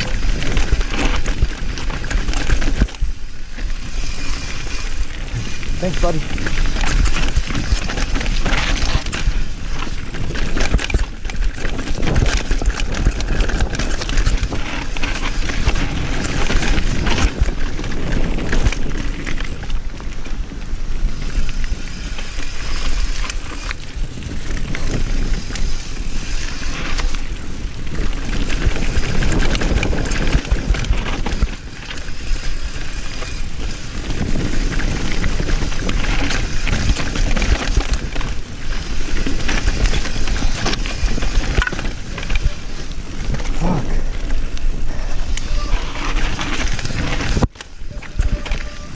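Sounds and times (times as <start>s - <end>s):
bike clattering and rattling: 0.0s - 48.9s
tyres rolling over dirt and rock: 0.0s - 48.9s
wind noise on microphone: 0.0s - 48.9s.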